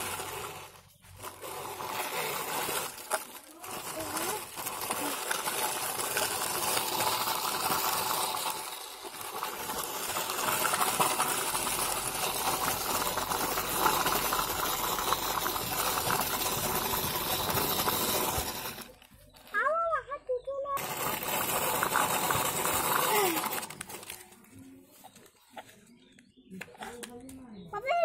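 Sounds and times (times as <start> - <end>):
plastic toy wheels rattling on dirt: 0.0 - 28.0.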